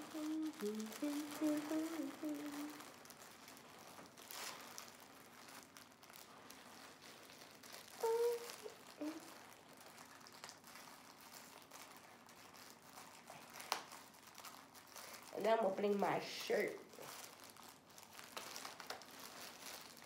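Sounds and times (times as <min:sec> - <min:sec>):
person humming: 0:00.0 - 0:02.9, 0:08.0 - 0:09.4
plastic package crinkling: 0:00.0 - 0:20.0.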